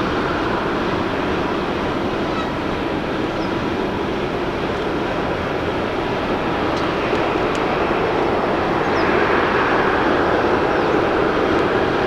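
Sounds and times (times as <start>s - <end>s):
jet engines running: 0.0s - 12.0s.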